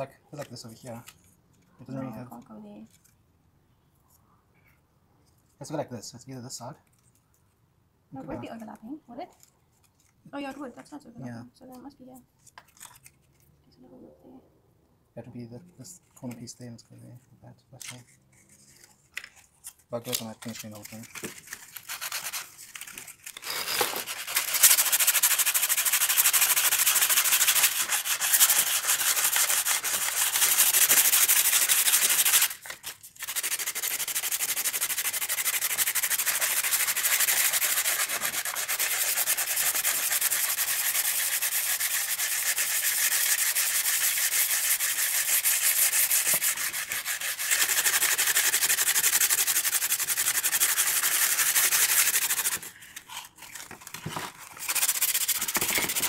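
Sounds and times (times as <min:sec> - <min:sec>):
sandpaper rubbing on wood: 0:20.3 - 0:53.2, 0:54.6 - 0:56.0.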